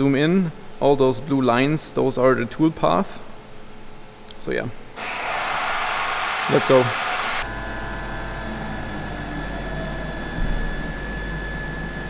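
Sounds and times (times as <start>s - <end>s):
milling machine whine: 4.8s - 12.0s.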